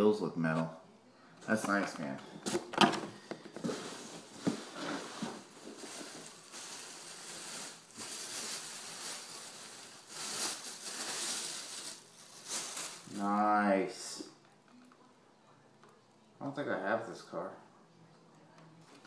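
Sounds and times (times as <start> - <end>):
packaging rustling and crinkling: 2.4 - 13.4.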